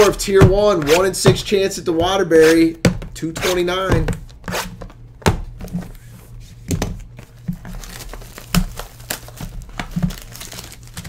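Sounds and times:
wrapping crinkling: 7.0 - 11.0.

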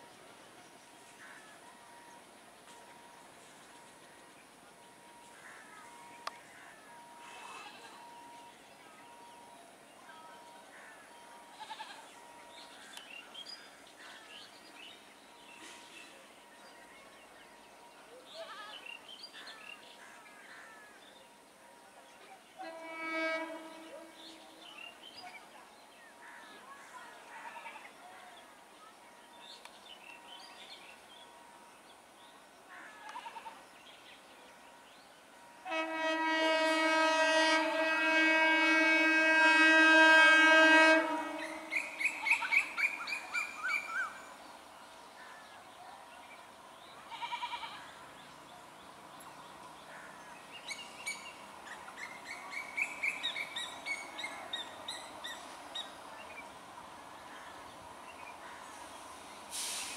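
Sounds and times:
train horn blast: 22.6 - 24.9, 35.6 - 42.1.

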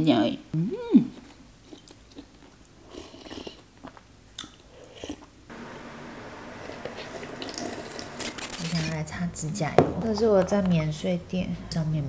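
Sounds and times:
steady low hiss: 3.6 - 12.0
soft sips and slurps of soup: 6.6 - 8.2.

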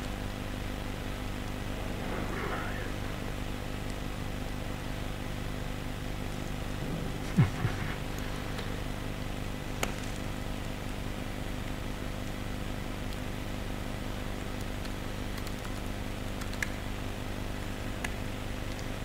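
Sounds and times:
ventilation fan hum: 0.0 - 19.0
computer keyboard clicks: 14.6 - 16.8.

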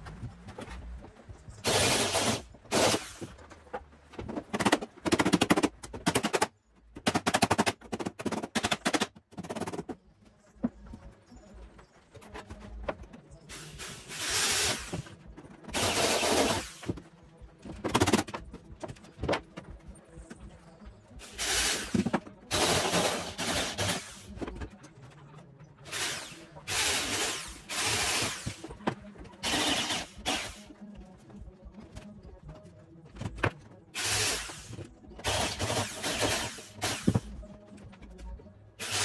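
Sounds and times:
electric drill boring metal: 25.9 - 28.5, 29.4 - 30.6, 38.8 - 39.0.

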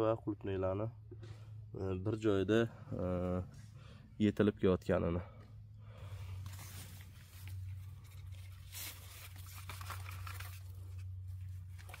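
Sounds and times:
steady low hum: 0.0 - 12.0
faint rustling and crackling: 6.2 - 12.0.

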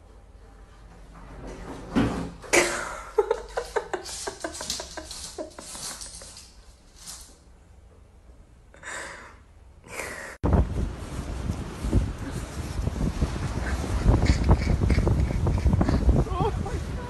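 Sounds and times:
wind buffeting microphone: 10.4 - 17.0.

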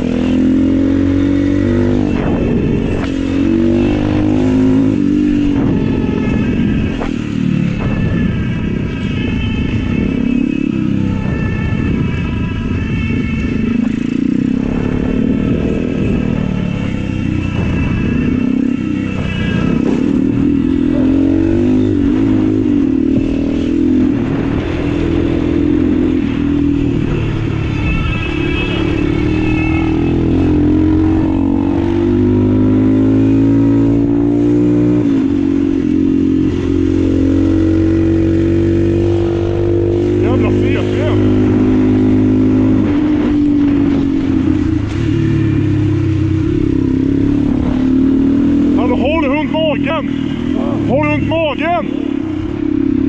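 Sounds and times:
go-kart engine running: 10.9 - 53.0.

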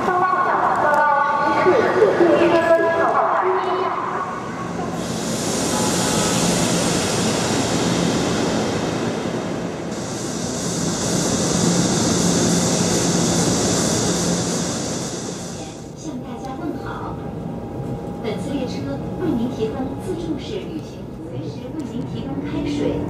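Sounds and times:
high-speed train rushing: 0.0 - 23.0.

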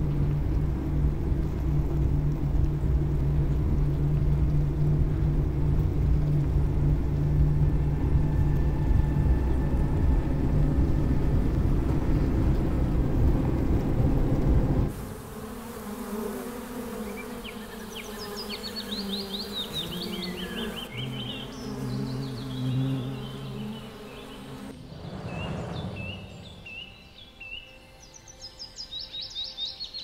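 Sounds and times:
loud low rumble: 0.0 - 14.9, 24.7 - 27.0
honeybees buzzing: 0.0 - 27.1.

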